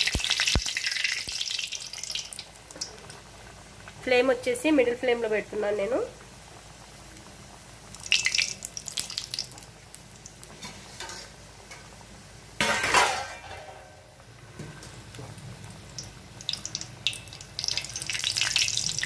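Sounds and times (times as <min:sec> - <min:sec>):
faint sizzle of deep-frying: 0:00.0 - 0:19.0
clatter of steel kitchenware: 0:12.6 - 0:13.9.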